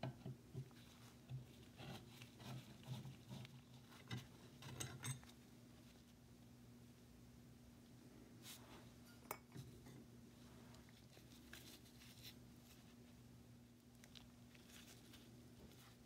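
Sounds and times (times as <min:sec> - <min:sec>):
steady low hum: 0:00.0 - 0:16.0
metal scrapes and glove rustles: 0:00.7 - 0:06.2, 0:08.4 - 0:13.2.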